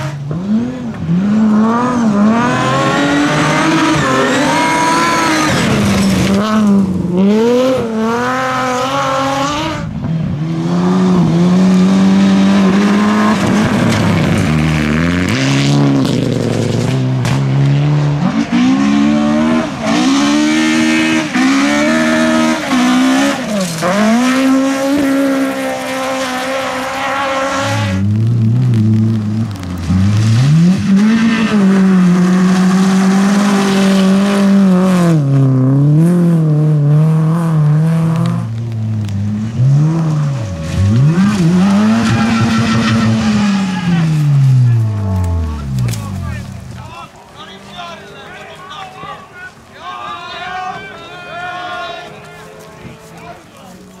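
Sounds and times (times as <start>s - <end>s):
rally car engines revving: 0.0s - 48.2s.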